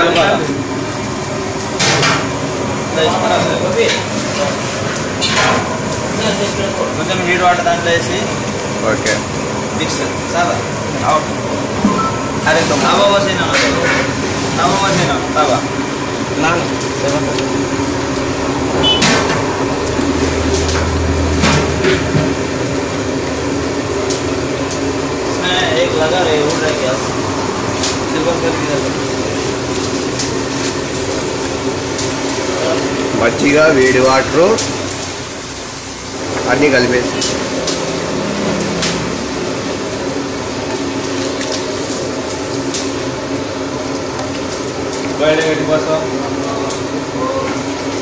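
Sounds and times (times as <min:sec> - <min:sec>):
kitchen background noise: 0:00.0 - 0:48.0
steady hum: 0:10.7 - 0:14.5.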